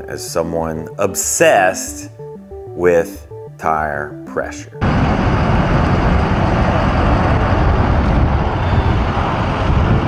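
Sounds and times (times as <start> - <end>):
vehicle road noise: 4.8 - 10.0.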